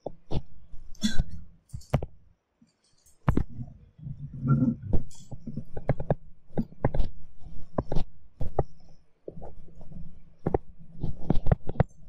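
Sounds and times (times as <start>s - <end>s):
steady low hum: 0.0s - 12.0s
pen tapping on tablet screen: 5.4s - 12.0s.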